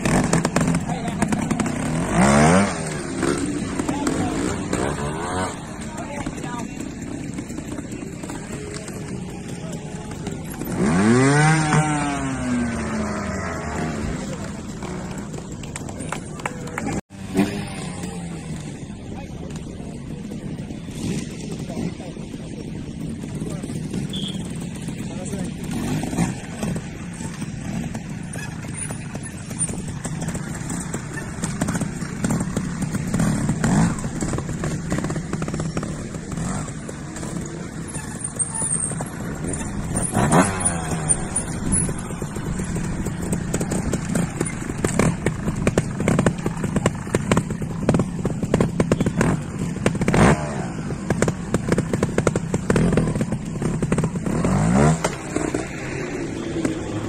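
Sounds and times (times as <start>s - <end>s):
motorcycle engine idling and revving: 0.0s - 57.0s.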